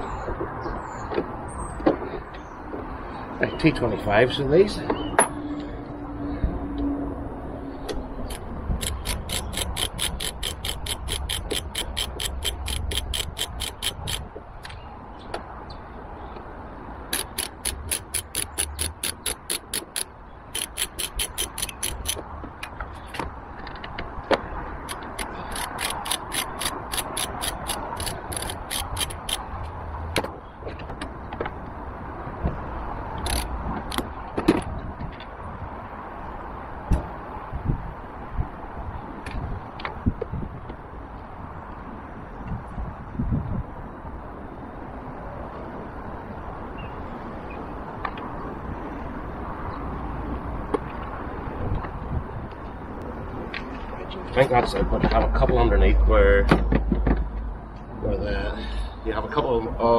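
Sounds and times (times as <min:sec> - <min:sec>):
socket ratchet clicking: 0:08.2 - 0:14.3, 0:17.1 - 0:22.8, 0:24.8 - 0:29.5, 0:33.2 - 0:34.1.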